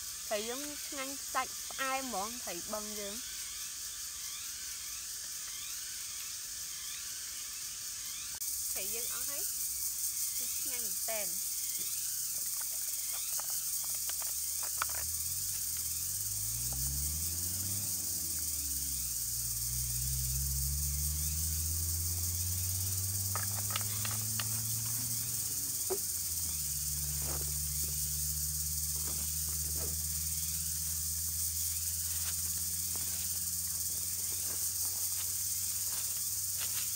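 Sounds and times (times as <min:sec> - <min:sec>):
high-pitched insect buzz: 0:00.0 - 0:36.9
dry leaves rustling: 0:23.2 - 0:36.9.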